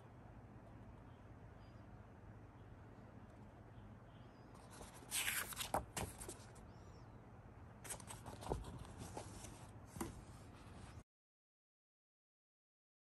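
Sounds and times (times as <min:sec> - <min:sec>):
book pages rustling: 0:04.6 - 0:06.6, 0:07.8 - 0:11.0
book closing: 0:04.7 - 0:06.4.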